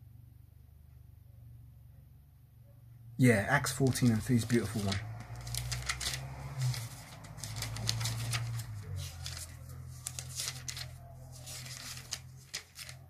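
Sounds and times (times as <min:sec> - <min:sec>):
pages rustling: 0:03.8 - 0:13.0.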